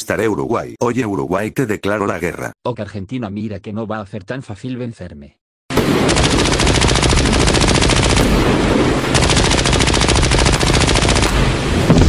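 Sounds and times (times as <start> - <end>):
rapid machine-gun fire: 5.7 - 11.6.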